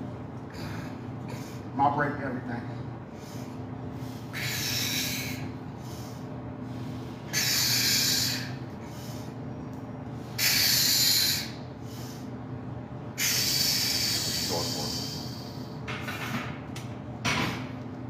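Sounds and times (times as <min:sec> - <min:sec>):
low room hum: 0:00.0 - 0:18.0.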